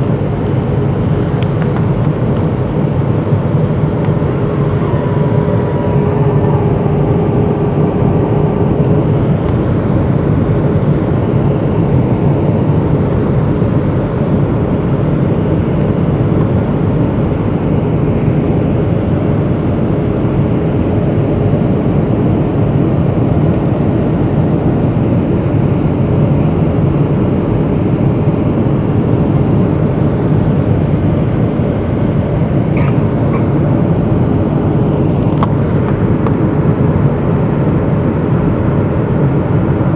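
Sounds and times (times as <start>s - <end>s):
airplane cabin roar: 0.0s - 39.9s.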